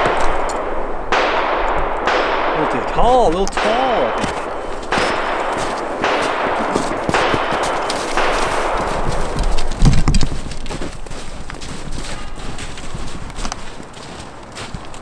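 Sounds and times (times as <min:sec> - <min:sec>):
footsteps crunching through snow: 0:03.6 - 0:15.0.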